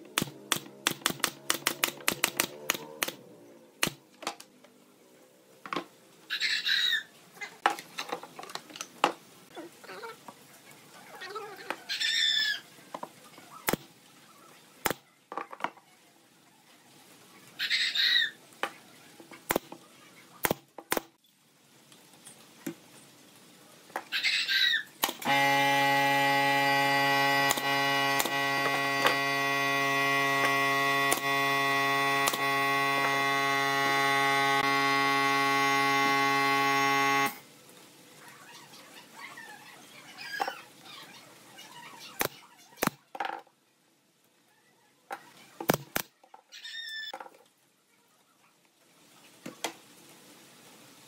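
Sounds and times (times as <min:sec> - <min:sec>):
nail gun clacks: 0:00.2 - 0:03.2, 0:27.4 - 0:29.2, 0:30.4 - 0:31.4, 0:32.2 - 0:32.5
air compressor hum: 0:25.2 - 0:37.4.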